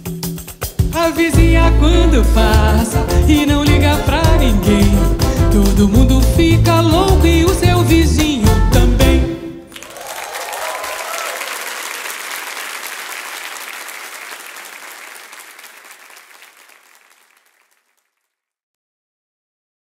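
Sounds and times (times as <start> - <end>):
audience cheering: 9.7 - 17.8
audience applauding: 9.7 - 18.1.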